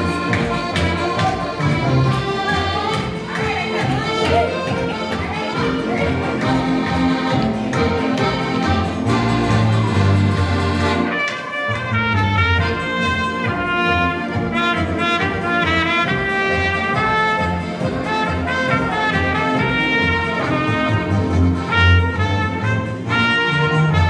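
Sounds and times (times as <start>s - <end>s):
piano accordion bass notes: 0.0s - 24.0s
trumpet melody: 4.0s - 24.0s.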